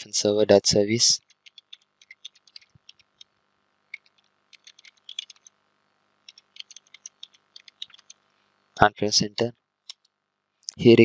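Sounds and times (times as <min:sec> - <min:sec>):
keyboard key clicks: 0:03.9 - 0:05.5, 0:06.3 - 0:08.2.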